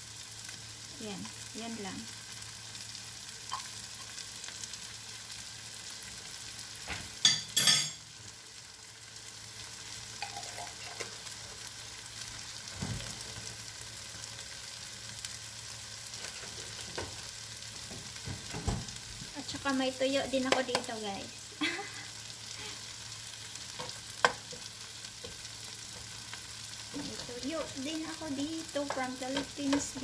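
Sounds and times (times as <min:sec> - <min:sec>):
food sizzling in frying pan: 0:00.0 - 0:30.0.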